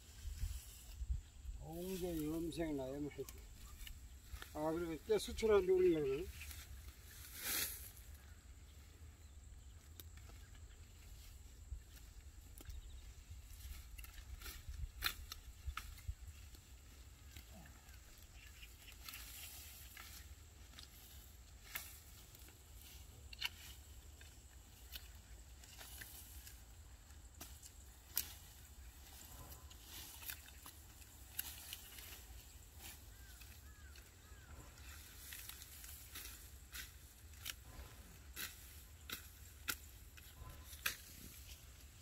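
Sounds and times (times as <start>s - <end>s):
stalks snapping and clicking: 13.6s - 16.6s, 23.2s - 26.6s, 27.3s - 28.6s, 29.2s - 34.4s, 35.2s - 41.5s.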